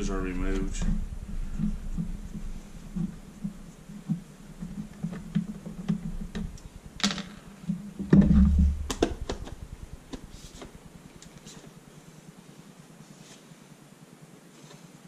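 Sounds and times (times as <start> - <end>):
heavy thump: 0.4 - 11.0
sharp clicks: 8.2 - 11.4.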